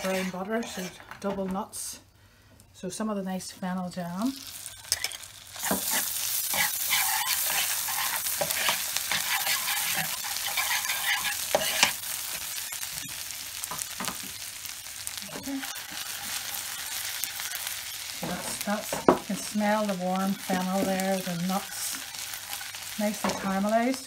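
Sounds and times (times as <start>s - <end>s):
metal spoon scraping pan: 0.0s - 1.3s, 4.9s - 12.0s
butter sizzling in a frying pan: 3.9s - 24.0s.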